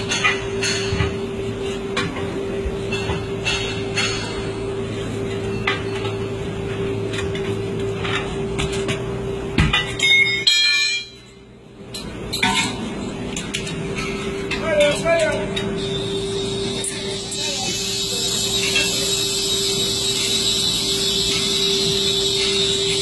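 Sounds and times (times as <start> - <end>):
loud metallic clang with ringing: 0.0 - 1.2, 2.8 - 4.7, 9.6 - 11.4, 13.9 - 23.0
steady hum: 0.0 - 23.0.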